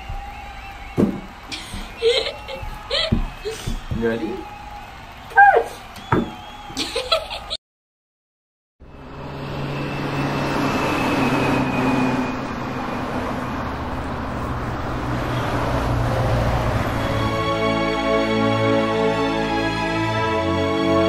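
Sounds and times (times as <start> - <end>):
city road traffic: 8.8 - 20.0
music: 17.0 - 21.0.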